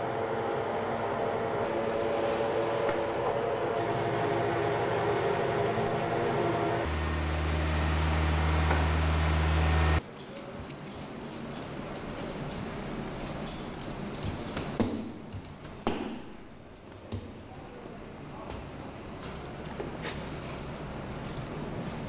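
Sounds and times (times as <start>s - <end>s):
food processor humming: 0.0s - 10.0s
utensils clinking and clattering: 10.0s - 15.6s.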